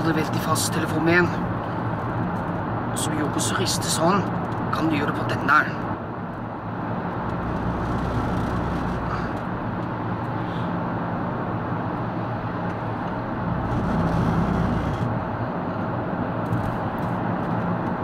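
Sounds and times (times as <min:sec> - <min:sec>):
car road and engine noise: 0:00.0 - 0:18.0
deep drone: 0:07.2 - 0:09.7, 0:13.1 - 0:15.4.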